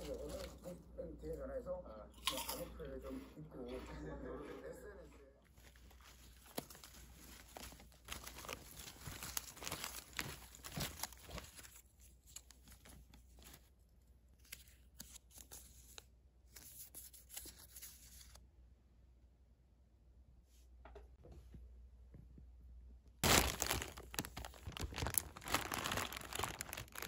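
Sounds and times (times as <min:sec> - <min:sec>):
crinkling and tearing rustles: 0:05.5 - 0:16.0, 0:23.2 - 0:27.0
small crackles and clicks: 0:23.2 - 0:27.0.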